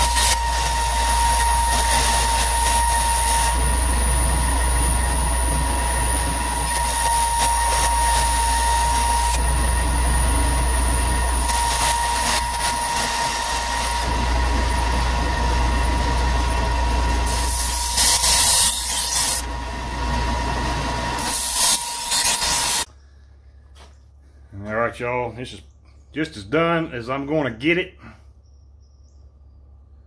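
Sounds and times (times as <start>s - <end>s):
belt sander whining: 0.0s - 22.9s
knife blade grinding on belt: 17.3s - 19.4s, 21.2s - 22.9s.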